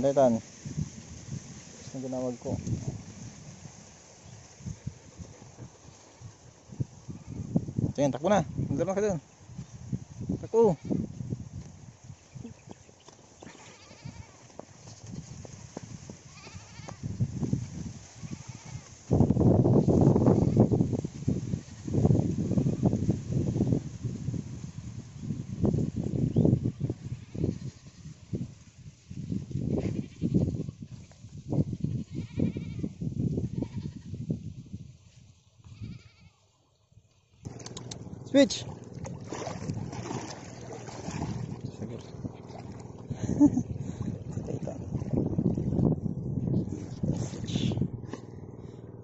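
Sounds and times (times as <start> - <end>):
wind rumble on microphone: 0.0 - 36.3, 37.4 - 49.0
running footfalls and rustling: 12.6 - 17.0.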